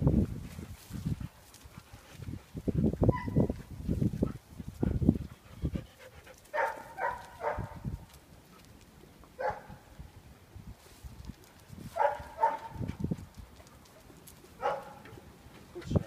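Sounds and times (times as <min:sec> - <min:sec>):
high-pitched dog whines: 0:03.1 - 0:03.6.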